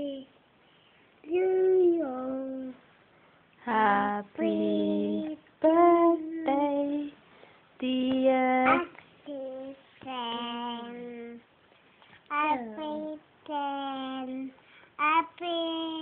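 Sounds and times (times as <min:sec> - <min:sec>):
child singing drawn-out notes: 0:01.2 - 0:02.8, 0:08.6 - 0:11.4, 0:12.3 - 0:16.0
child breathing: 0:14.6 - 0:15.0.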